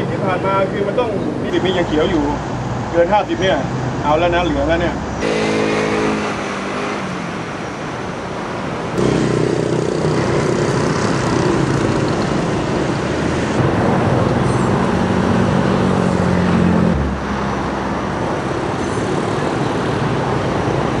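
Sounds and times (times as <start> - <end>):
traffic noise: 0.0 - 21.0
engines running: 4.6 - 21.0.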